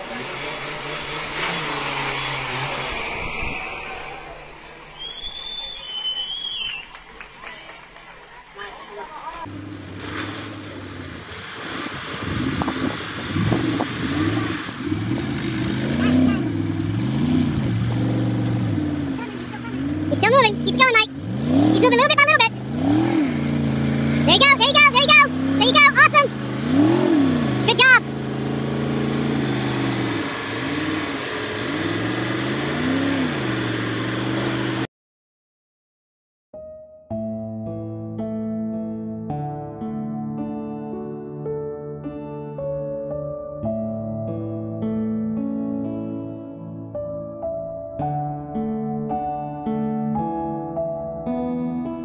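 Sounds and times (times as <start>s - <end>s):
truck engine revving under load: 0.0s - 4.7s, 9.4s - 34.9s.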